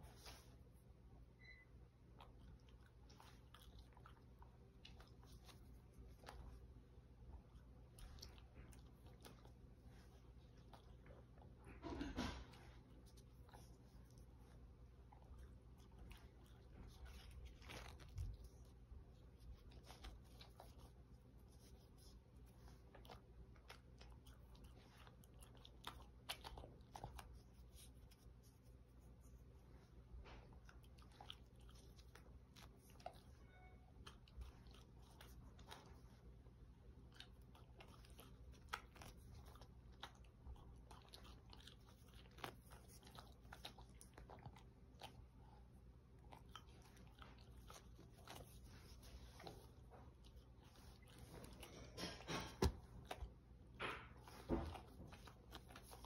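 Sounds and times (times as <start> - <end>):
dog chewing and crunching: 2.1 - 29.2, 30.3 - 56.0.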